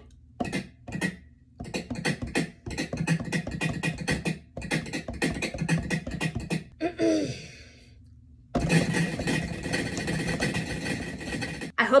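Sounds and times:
beatboxed snare taps: 0.4s - 6.7s, 8.6s - 11.6s.

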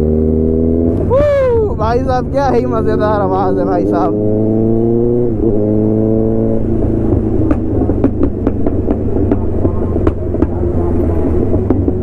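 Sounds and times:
motorcycle engine revving: 0.0s - 12.0s
engine pops and crackles: 7.0s - 12.0s.

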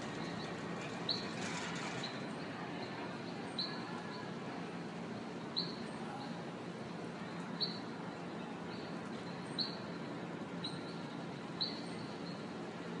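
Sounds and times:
steady background noise: 0.0s - 13.0s.

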